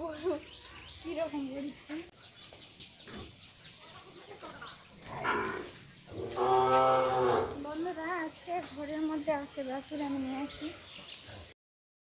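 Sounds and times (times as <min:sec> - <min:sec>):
cow mooing: 0:05.1 - 0:07.6.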